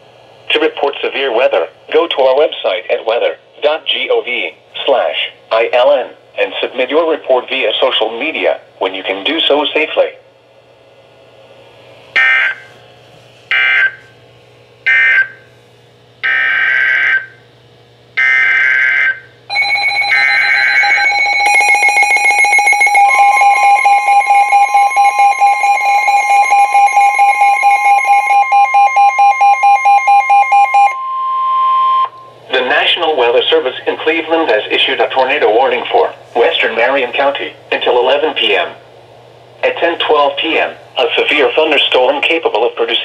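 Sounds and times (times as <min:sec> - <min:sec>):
steady warning alarm tone: 0:12.1 - 0:12.8, 0:13.5 - 0:14.2, 0:14.8 - 0:15.5, 0:16.2 - 0:17.4, 0:18.2 - 0:34.6
rapid pulsing alarm beeps: 0:12.2 - 0:12.7, 0:13.5 - 0:14.0, 0:14.9 - 0:15.4, 0:16.2 - 0:17.4, 0:18.2 - 0:32.4
screechy warbling data bursts: 0:18.3 - 0:30.9.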